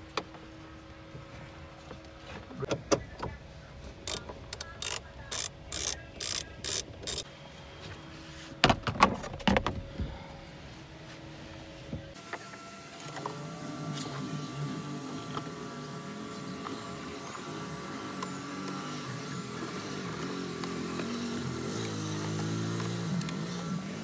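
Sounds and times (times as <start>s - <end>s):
ratchet wrench ratcheting: 4.0s - 4.2s, 4.8s - 7.2s.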